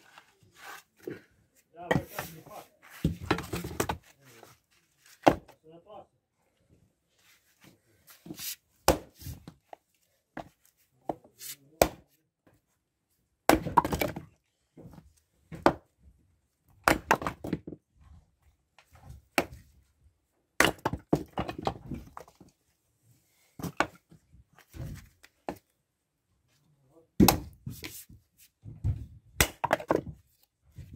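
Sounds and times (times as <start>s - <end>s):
axe chopping wood: 8.8s - 9.4s, 11.8s - 12.0s, 13.5s - 14.2s, 16.8s - 17.7s, 19.4s - 19.6s, 20.6s - 22.0s, 27.2s - 27.6s, 29.4s - 30.1s.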